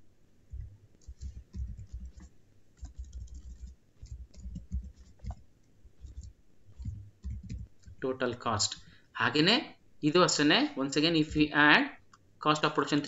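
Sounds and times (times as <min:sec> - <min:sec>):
keyboard typing: 0:00.5 - 0:09.0.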